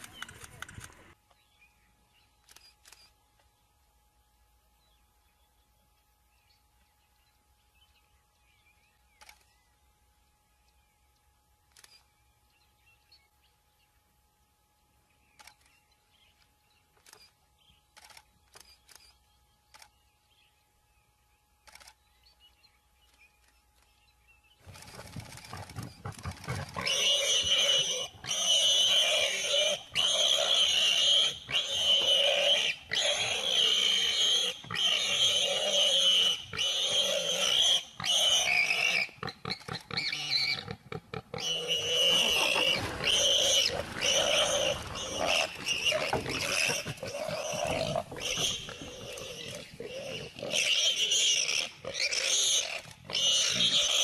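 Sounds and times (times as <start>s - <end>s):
lions snarling and growling: 24.7s - 37.5s, 38.2s - 54.0s.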